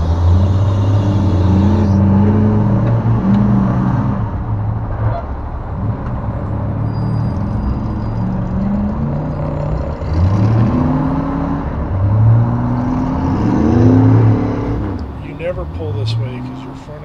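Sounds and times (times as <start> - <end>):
off-road engines revving: 0.0 - 17.0.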